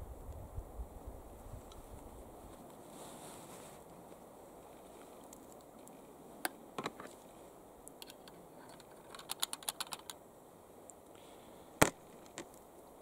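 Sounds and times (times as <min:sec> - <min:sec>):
small gun clicks: 0:08.0 - 0:10.2.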